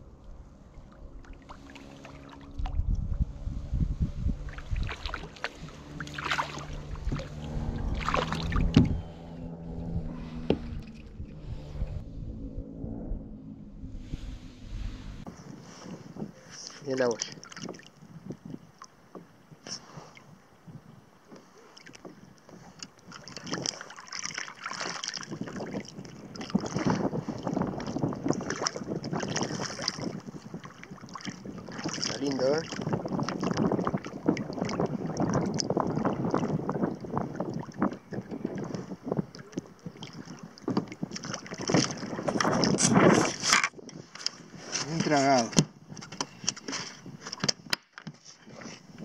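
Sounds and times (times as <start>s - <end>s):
wind: 0.0s - 49.0s
water splashing: 0.3s - 3.3s, 4.3s - 12.1s, 17.0s - 18.0s, 21.6s - 43.5s
fish splashing at water surface: 4.5s - 8.8s.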